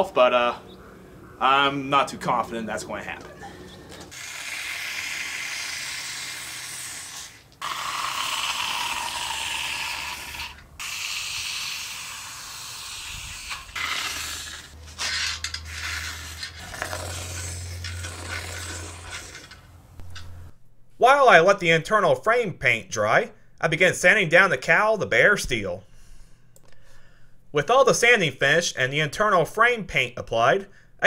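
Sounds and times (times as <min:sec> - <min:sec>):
aerosol can spraying hiss: 0:04.1 - 0:08.6, 0:10.2 - 0:14.7.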